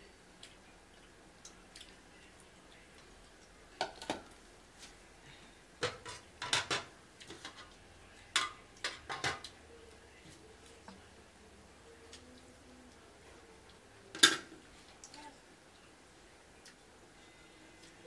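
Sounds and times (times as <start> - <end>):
metal pots and spoons clinking: 5.8 - 7.7, 8.4 - 9.5.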